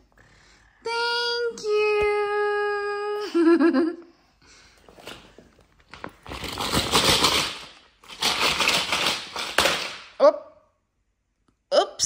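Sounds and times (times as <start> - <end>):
plastic blocks clattering in tub: 6.0 - 10.2.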